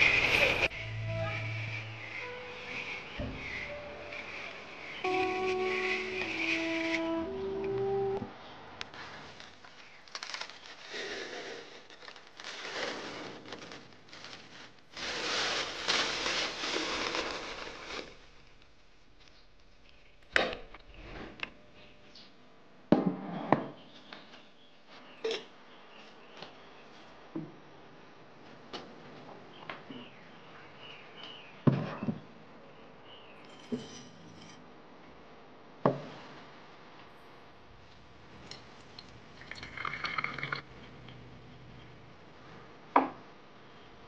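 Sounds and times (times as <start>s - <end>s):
soft rustle: 8.9s - 18.6s
plastic bag crinkling: 11.9s - 18.4s.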